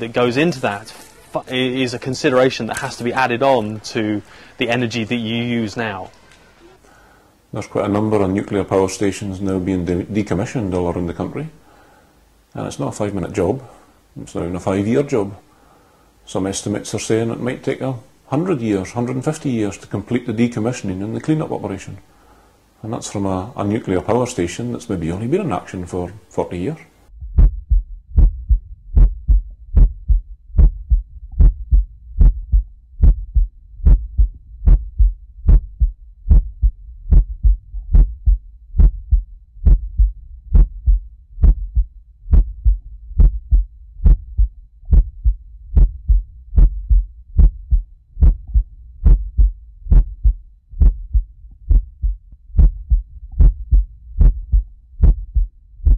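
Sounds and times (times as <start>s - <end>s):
heartbeat thumps: 27.1s - 55.9s.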